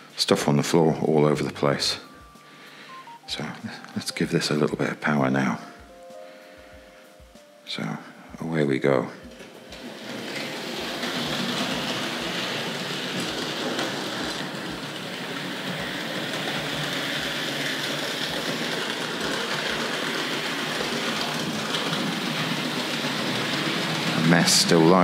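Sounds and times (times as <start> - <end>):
model train running: 9.4 - 25.0.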